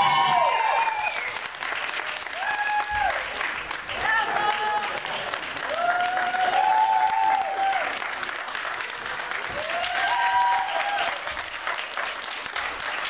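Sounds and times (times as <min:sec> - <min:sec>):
person whooping: 0:00.0 - 0:01.3, 0:02.4 - 0:03.2, 0:05.7 - 0:07.9, 0:09.6 - 0:11.2
crowd clapping: 0:00.0 - 0:13.0.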